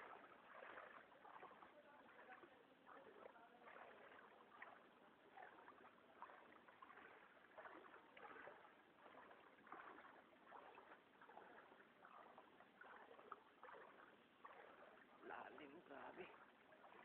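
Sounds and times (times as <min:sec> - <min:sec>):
floodwater sloshing and splashing: 0:00.0 - 0:17.0.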